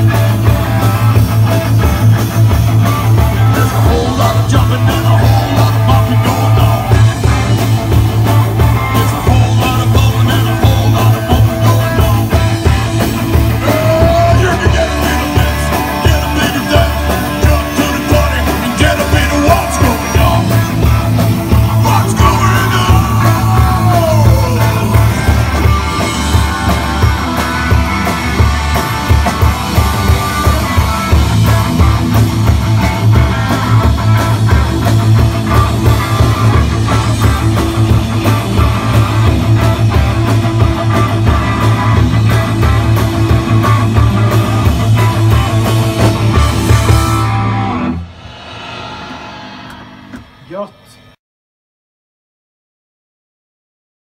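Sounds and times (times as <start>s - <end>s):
bending guitar or vocal notes: 0.0s - 48.2s
rock band playing live: 0.0s - 51.2s.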